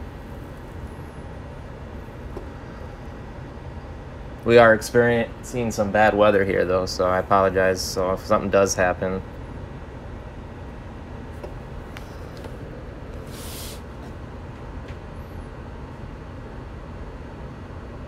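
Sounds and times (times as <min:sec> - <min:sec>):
faint hum: 0:00.0 - 0:18.0
low rumbling background noise: 0:00.0 - 0:18.0
brief hiss: 0:13.2 - 0:13.9.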